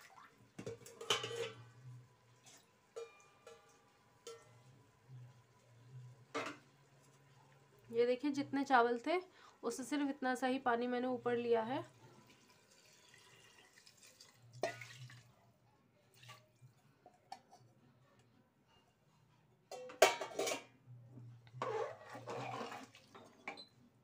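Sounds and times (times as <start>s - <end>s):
ladle clanking on pot: 0.6s - 1.8s, 3.0s - 4.7s, 6.3s - 6.7s, 19.7s - 20.7s
metal ladle scraping a pot: 0.7s - 1.9s, 21.5s - 23.7s.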